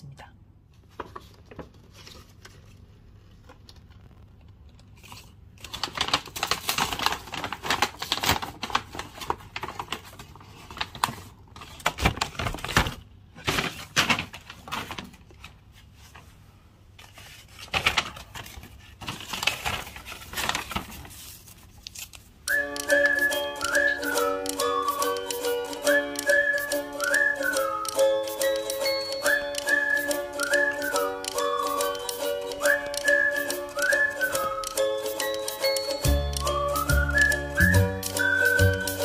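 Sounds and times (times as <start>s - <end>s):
paper bag rustling and crinkling: 0.8s - 22.5s.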